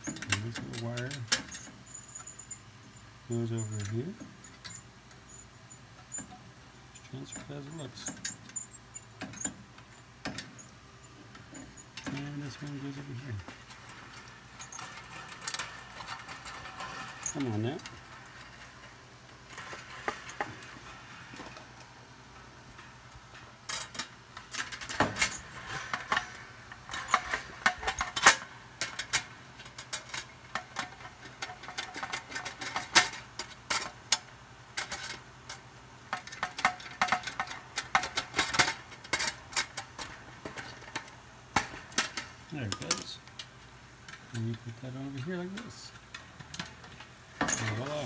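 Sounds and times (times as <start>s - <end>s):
metallic clicks taps and scrapes: 0.0s - 2.6s, 22.7s - 48.0s.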